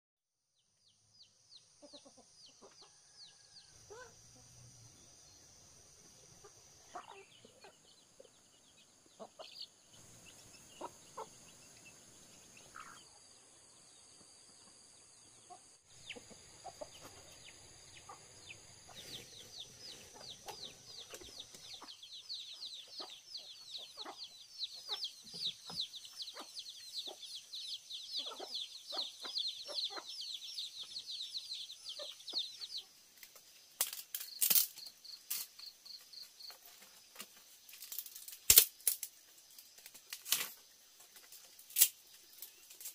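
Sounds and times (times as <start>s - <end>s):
chickens clucking: 1.7s - 4.6s, 6.2s - 13.1s, 14.6s - 33.6s.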